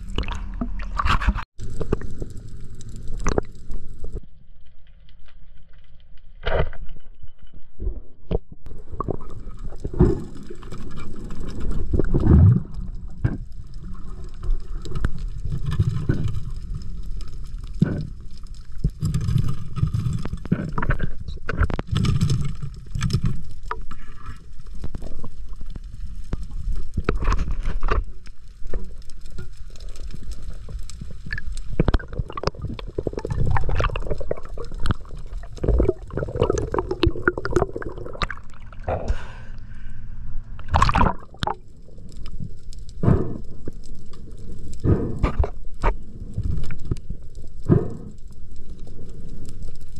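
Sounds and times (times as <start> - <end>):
underwater rumble of water: 0.0 - 49.9
clicks knocks and scrapes on rocks: 0.9 - 2.0, 26.3 - 28.2.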